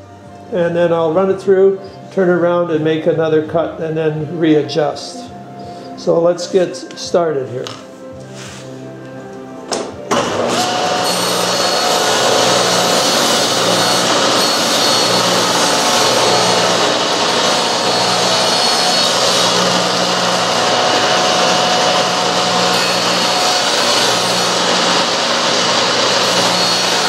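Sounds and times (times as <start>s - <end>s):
table saw cutting wood: 10.1s - 27.0s.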